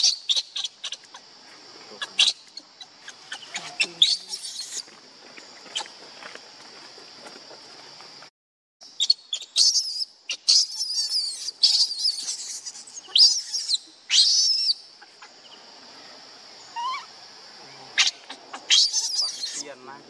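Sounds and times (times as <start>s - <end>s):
monkey squealing and screaming: 0.0s - 1.2s, 2.0s - 4.9s, 9.0s - 15.3s, 16.7s - 17.2s, 18.0s - 19.6s.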